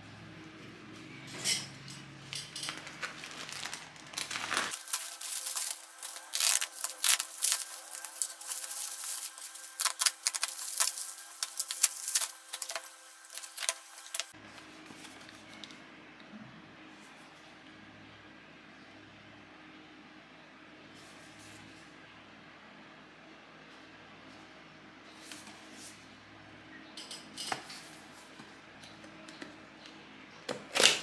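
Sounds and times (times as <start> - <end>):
plastic bag crinkling and tearing: 2.6 - 14.3.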